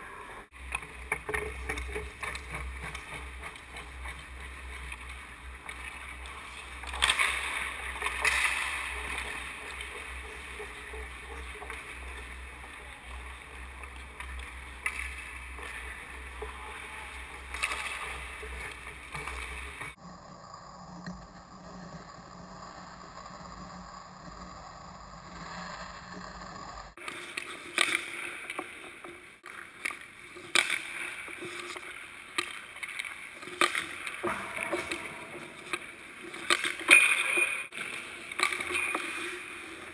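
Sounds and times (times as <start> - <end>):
skates scraping ice: 0.0 - 20.0, 26.9 - 39.9
hockey stick hitting puck: 0.6 - 20.0, 27.0 - 39.9
puck striking boards: 0.6 - 20.0, 29.8 - 39.5.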